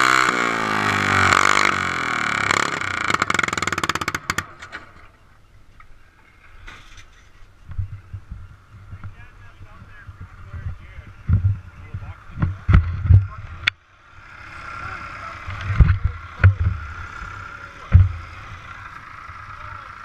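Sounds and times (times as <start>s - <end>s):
tractor engine winding down: 0.0s - 5.2s, 13.6s - 20.0s
low thumps: 7.6s - 13.7s, 15.5s - 17.2s, 17.8s - 18.6s.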